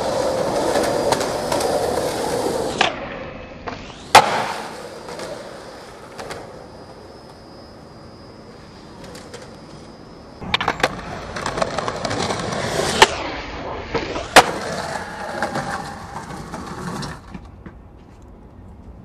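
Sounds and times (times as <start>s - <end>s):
skateboard wheels rolling on concrete: 0.0s - 19.0s
skateboard landing slap: 2.7s - 5.5s, 10.4s - 15.0s
skateboard tail pop: 2.8s - 5.3s.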